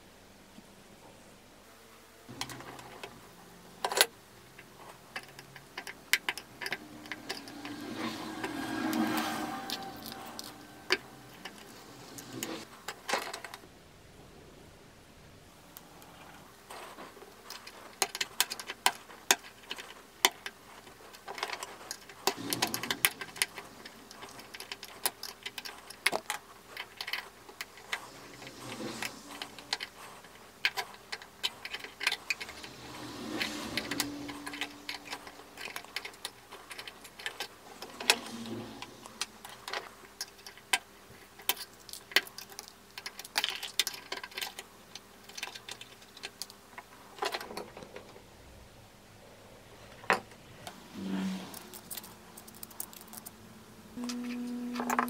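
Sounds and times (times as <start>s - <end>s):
small metallic clicks: 3.8s - 13.6s, 51.5s - 53.4s.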